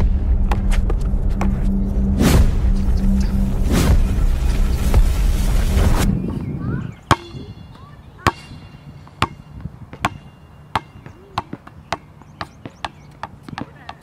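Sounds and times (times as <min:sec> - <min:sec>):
music: 0:00.0 - 0:06.1
basketball bouncing on hard court: 0:08.2 - 0:14.0.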